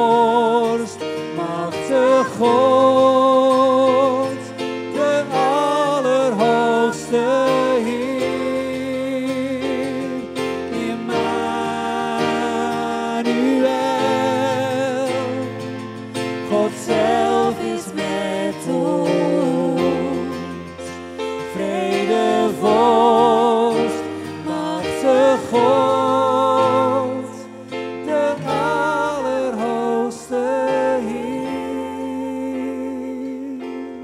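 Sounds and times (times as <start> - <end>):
instrumental accompaniment: 0.0 - 34.0
voices singing worship song: 0.0 - 34.0.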